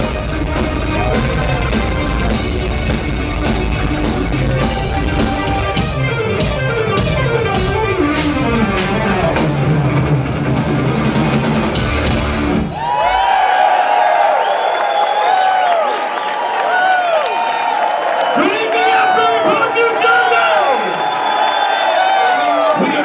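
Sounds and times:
crowd cheering: 0.0s - 7.6s, 8.4s - 23.0s
live rock band playing: 0.0s - 12.9s.

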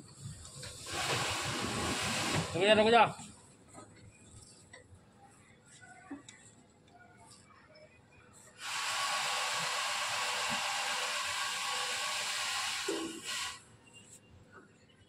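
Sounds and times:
loud steady hiss: 0.0s - 3.0s, 8.6s - 14.0s.

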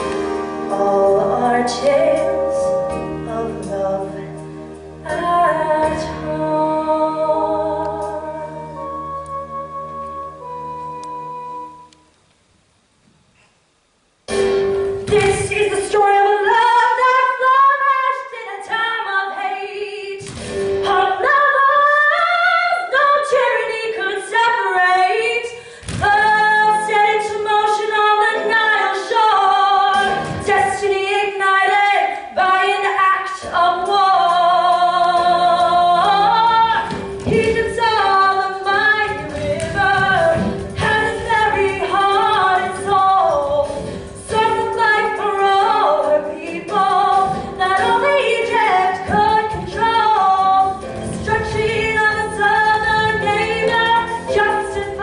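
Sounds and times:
orchestral backing track: 0.0s - 12.2s, 26.0s - 31.2s, 33.4s - 55.0s.

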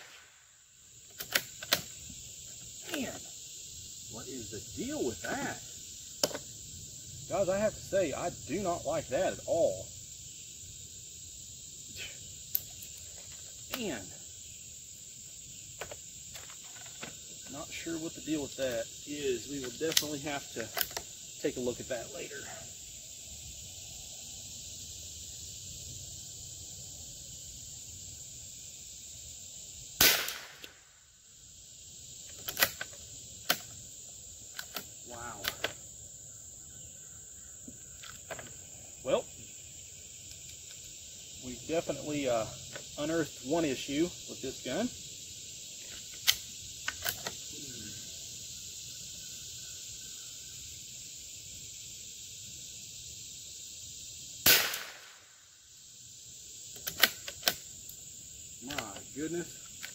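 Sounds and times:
rifle shot: 0.0s - 0.4s, 30.0s - 30.8s, 54.4s - 55.3s
crickets chirping: 0.0s - 59.9s
high-pitched insect chorus: 0.0s - 59.9s.

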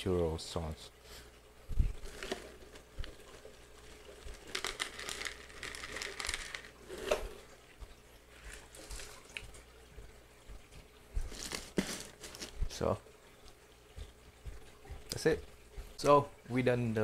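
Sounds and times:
plastic bag crinkling: 2.0s - 7.1s, 11.2s - 12.7s.

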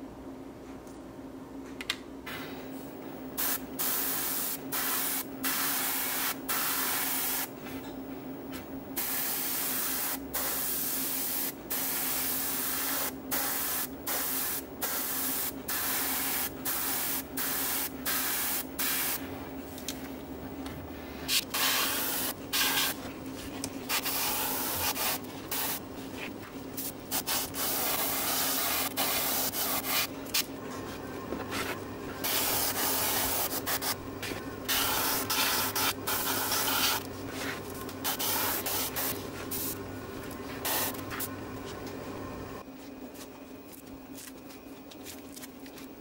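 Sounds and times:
airbrush spraying hissing bursts: 3.4s - 7.5s, 9.0s - 19.2s, 21.3s - 23.0s, 23.9s - 25.8s, 26.8s - 30.1s, 32.2s - 34.0s, 34.7s - 37.0s, 38.0s - 39.8s, 40.6s - 41.0s.

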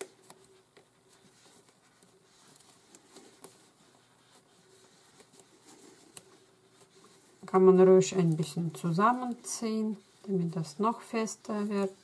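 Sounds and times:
soft rustling of cord: 0.0s - 12.0s.

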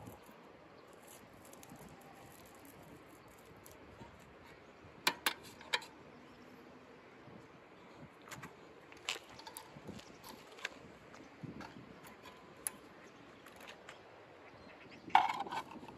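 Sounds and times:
bicycle wheels being handled: 0.0s - 5.9s, 8.3s - 14.0s, 15.1s - 15.9s.

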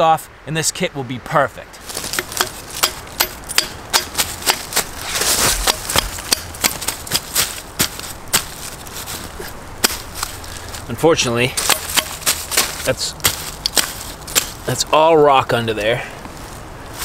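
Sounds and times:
leaves and soil rustling: 1.6s - 17.0s
pick striking rocky ground: 1.8s - 15.0s.

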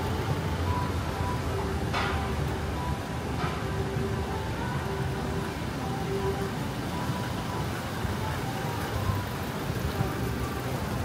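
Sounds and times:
traffic rumble: 0.0s - 11.0s.

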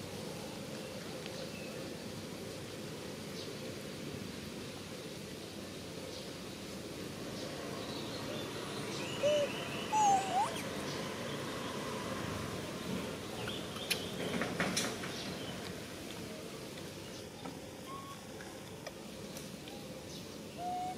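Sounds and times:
steady outdoor hiss: 0.0s - 20.9s
squeaky animal calls: 9.2s - 10.6s.

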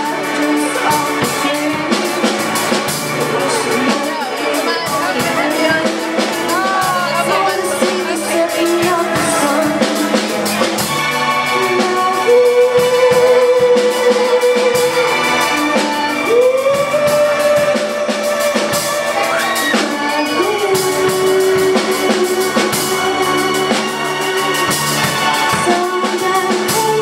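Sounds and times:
woman singing: 0.0s - 2.5s, 3.4s - 10.7s, 11.4s - 27.0s
rock band playing: 0.0s - 27.0s.

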